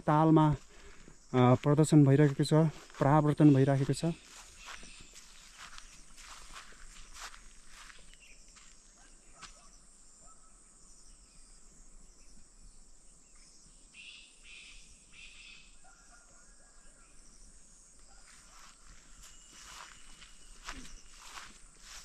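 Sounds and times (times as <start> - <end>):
high hiss of insects: 18.3 - 22.0.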